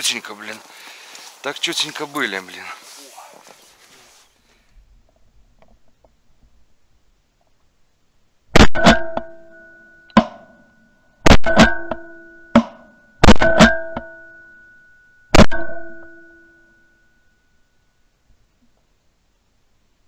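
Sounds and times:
loud sharp bangs with ringing: 8.6 - 10.6, 11.2 - 14.5.

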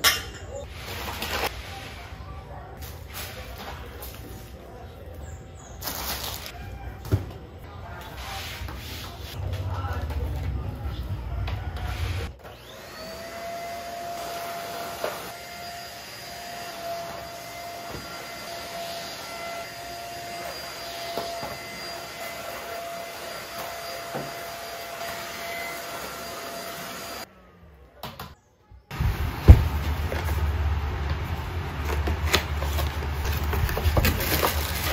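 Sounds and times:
vacuum cleaner motor whine: 11.8 - 27.6.

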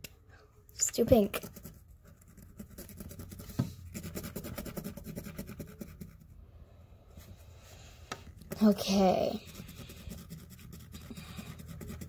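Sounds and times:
marker scratching on fabric: 1.0 - 6.4, 8.4 - 12.0.

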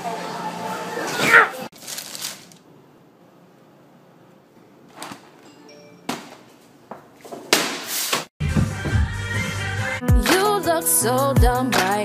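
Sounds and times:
music: 0.0 - 1.2, 8.4 - 12.0.

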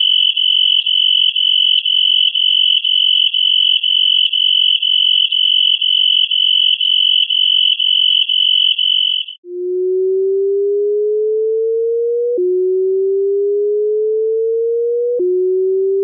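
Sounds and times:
low pure tone rising in pitch: 9.4 - 16.0.

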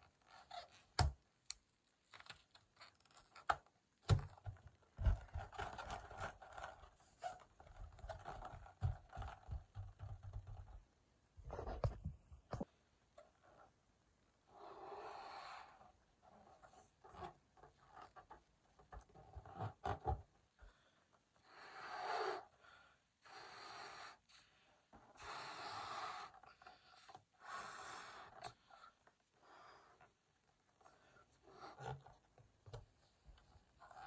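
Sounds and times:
latex balloon rubbing and clicks: 2.1 - 10.8
breath blowing into balloon: 25.2 - 26.8.

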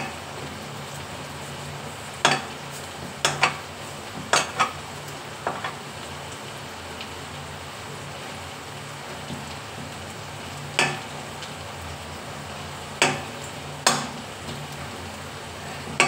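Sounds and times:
food sizzling in a pan: 0.0 - 16.0
spoon knocking against pan: 2.2 - 2.6, 10.8 - 11.1, 13.0 - 14.1.

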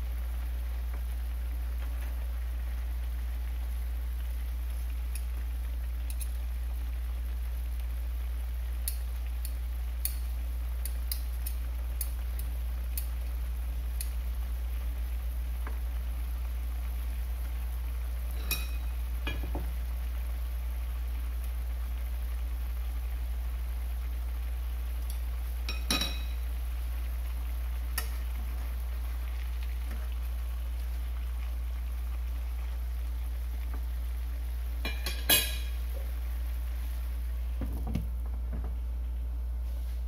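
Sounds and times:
fish sizzling in a pan: 0.0 - 40.0
metal tongs clicking on pan: 6.1 - 6.4, 8.8 - 10.2, 10.8 - 13.1.

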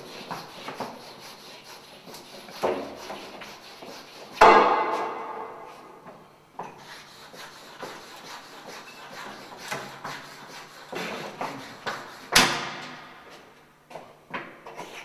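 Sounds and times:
chalk rasping on blackboard: 0.0 - 6.0, 6.6 - 12.6
sharp knock: 4.4 - 5.7.

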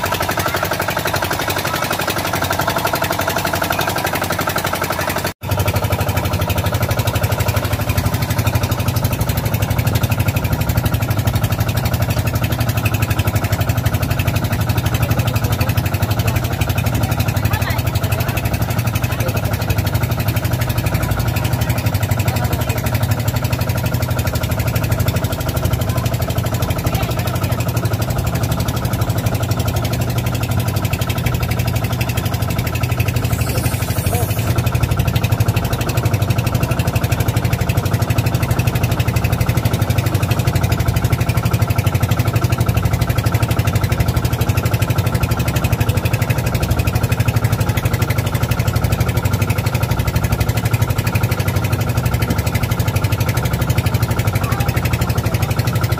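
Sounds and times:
air compressor engine running: 0.0 - 55.9.

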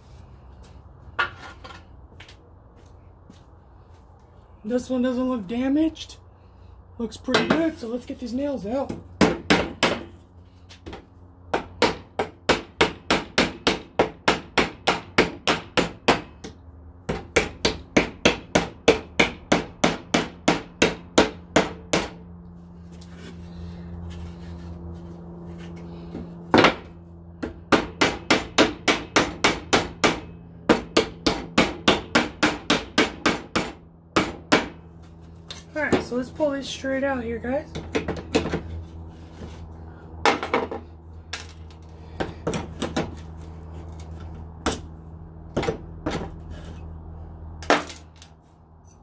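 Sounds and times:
hammer striking nails in wood: 9.2 - 10.1, 10.8 - 22.2, 26.5 - 34.8.

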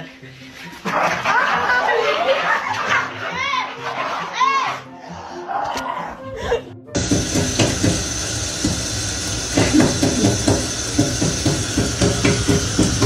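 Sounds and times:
tap water running into sink: 7.0 - 13.0.

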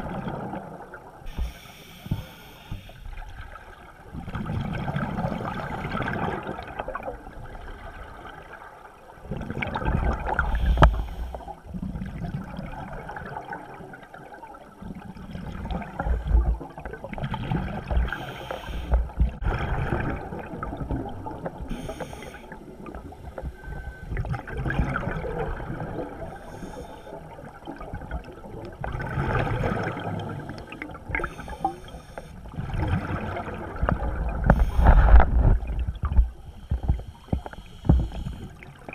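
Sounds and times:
diver exhaling bubbles underwater: 19.0 - 26.4, 27.1 - 31.8, 32.5 - 36.4.

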